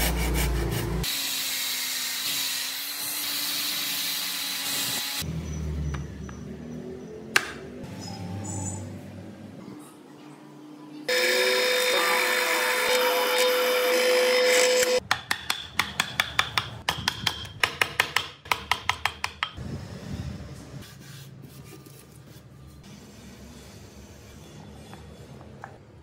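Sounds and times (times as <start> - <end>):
power tool humming: 11.1 - 15.0.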